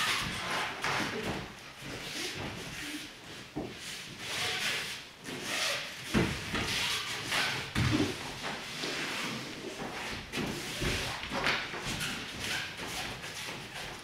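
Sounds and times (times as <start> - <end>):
body thumping onto mats: 7.7 - 8.4.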